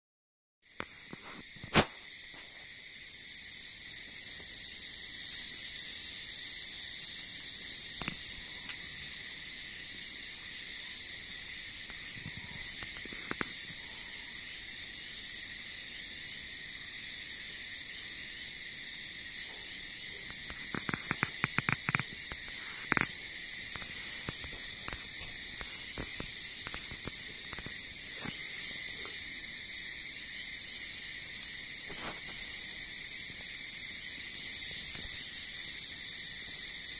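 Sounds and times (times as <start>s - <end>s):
night insects chirring: 0.6s - 36.9s
sharp clicks: 20.3s - 28.4s.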